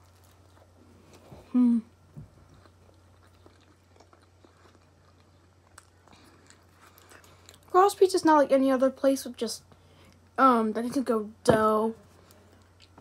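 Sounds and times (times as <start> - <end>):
person chewing food: 0.0 - 7.7, 12.2 - 13.0
person humming mm: 1.4 - 2.0.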